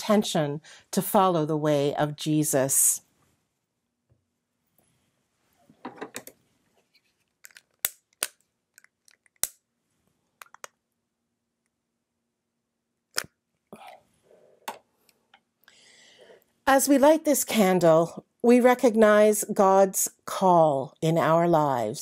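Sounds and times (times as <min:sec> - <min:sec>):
objects clicking and knocking on table: 0:05.8 - 0:06.4.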